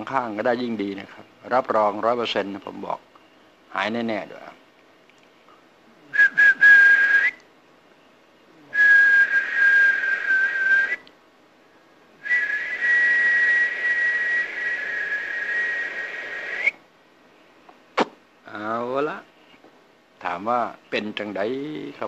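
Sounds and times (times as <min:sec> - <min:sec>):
man whistling: 0:06.1 - 0:07.4, 0:08.6 - 0:11.0, 0:12.2 - 0:16.8.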